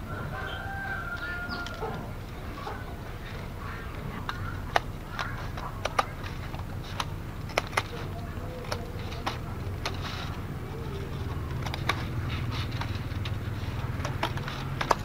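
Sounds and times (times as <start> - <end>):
steady low hum: 0.0 - 15.0
scissors snipping bamboo strips: 3.4 - 15.0.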